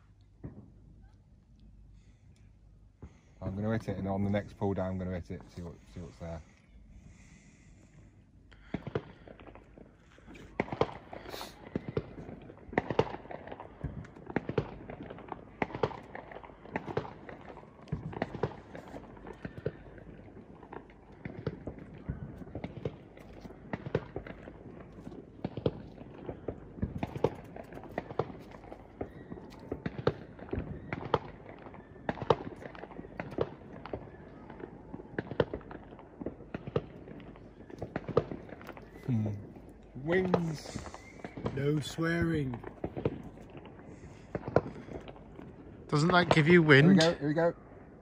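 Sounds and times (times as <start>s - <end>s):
fireworks popping and banging: 0.0s - 0.8s, 8.6s - 47.7s
fireworks hiss: 11.1s - 11.7s, 39.3s - 42.5s.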